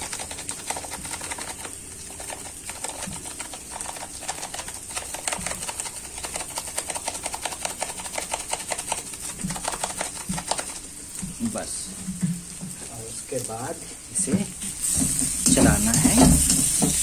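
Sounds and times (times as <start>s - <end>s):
vegetables frying in a pan: 9.1s - 17.0s.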